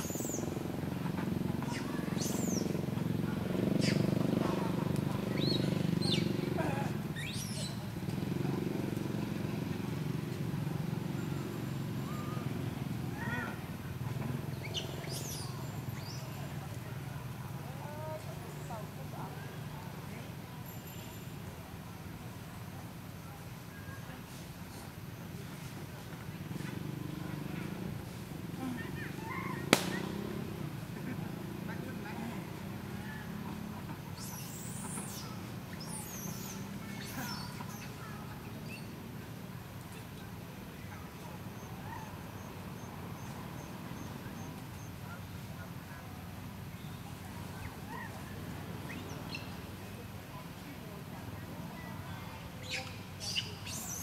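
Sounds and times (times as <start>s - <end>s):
macaques squeaky calls: 1.6s - 2.8s, 3.8s - 4.4s, 7.1s - 7.8s.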